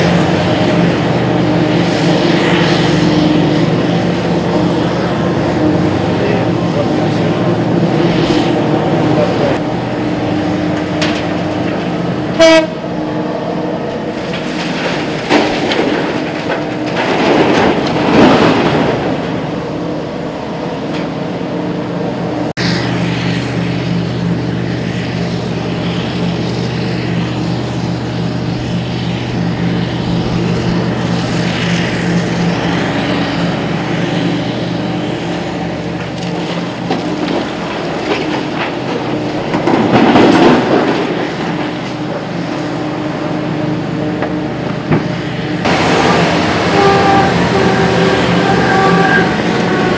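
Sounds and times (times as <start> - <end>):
excavator diesel engines droning: 0.0 - 49.9
horn toot: 12.4 - 12.8, 45.7 - 49.9.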